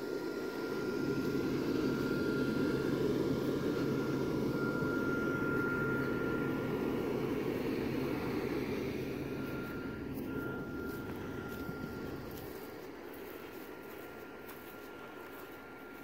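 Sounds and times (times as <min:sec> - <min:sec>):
blower fan whirring: 0:00.0 - 0:16.0.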